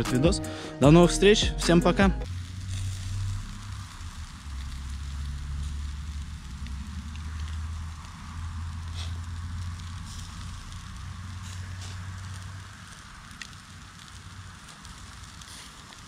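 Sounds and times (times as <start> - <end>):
low steady rumble: 0.0 - 12.8
fire crackling and popping: 2.2 - 16.0.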